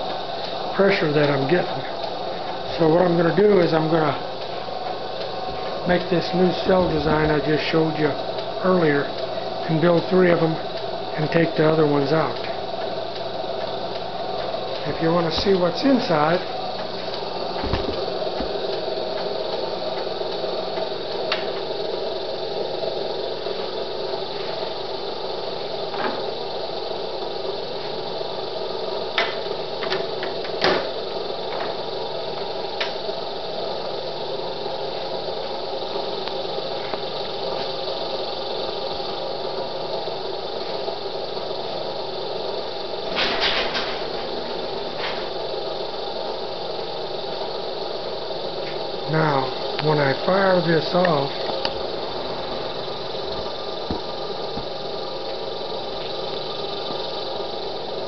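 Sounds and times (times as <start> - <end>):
electrical hum and buzz: 0.0 - 58.0.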